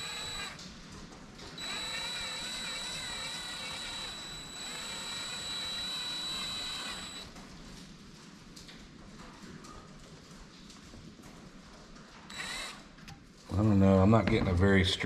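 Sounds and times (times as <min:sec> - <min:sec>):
cordless drill drilling into plastic: 0:00.0 - 0:00.6, 0:01.6 - 0:07.3, 0:12.3 - 0:12.9.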